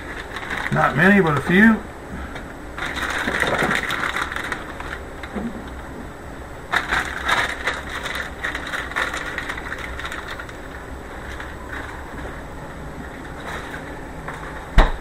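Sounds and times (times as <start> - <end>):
steady low hum: 0.0 - 15.0
olives rustling and clicking: 6.7 - 12.4.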